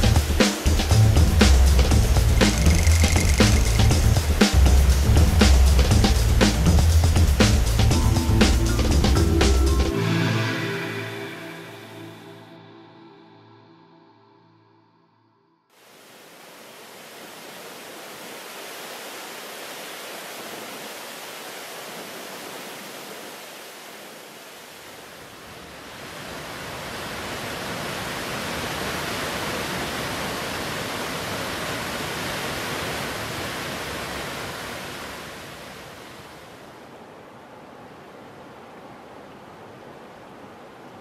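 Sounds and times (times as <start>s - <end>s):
waterfall rushing: 0.0s - 7.8s, 15.8s - 36.8s.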